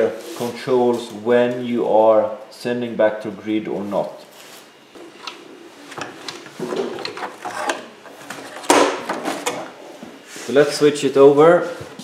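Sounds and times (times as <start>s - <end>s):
cables and metal parts rustling: 3.8s - 10.6s.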